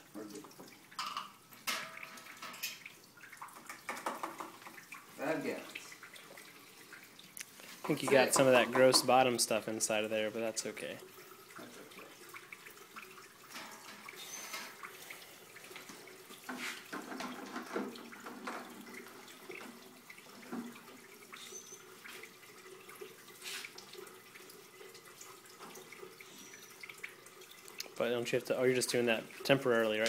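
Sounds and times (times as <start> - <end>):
liquid trickling from hose: 0.0 - 30.0.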